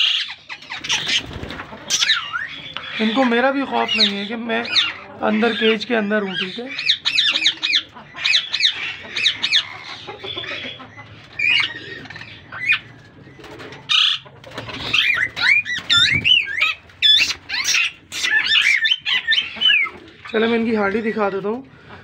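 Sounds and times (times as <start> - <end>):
parakeets calling: 0.0 - 22.0
wings fluttering: 0.5 - 3.0, 11.1 - 20.8.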